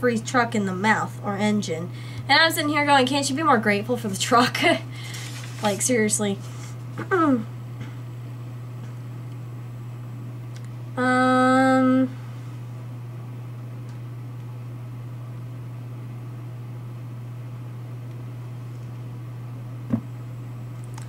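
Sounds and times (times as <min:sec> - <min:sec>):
steady low hum: 0:00.0 - 0:21.0
woman humming hmm: 0:07.0 - 0:07.6, 0:11.0 - 0:12.2.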